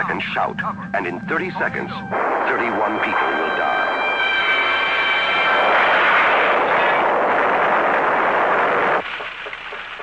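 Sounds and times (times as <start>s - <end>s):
tornado wind rushing: 1.7s - 9.0s.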